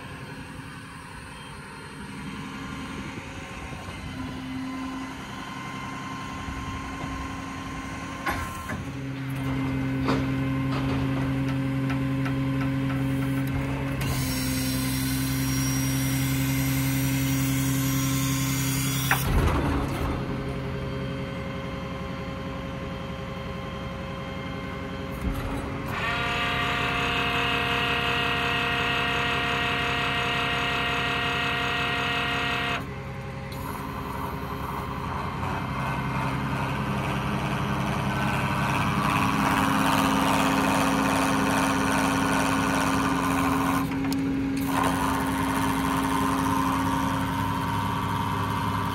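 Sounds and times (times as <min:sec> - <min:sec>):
hydraulic crane hum and whine: 0:00.0 - 0:48.9.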